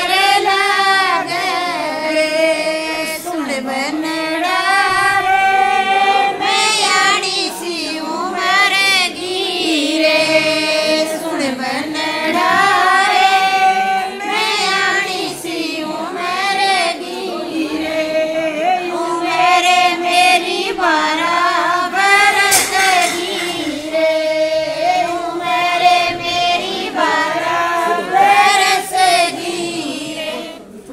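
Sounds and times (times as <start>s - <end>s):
woman singing folk song: 0.0s - 5.2s.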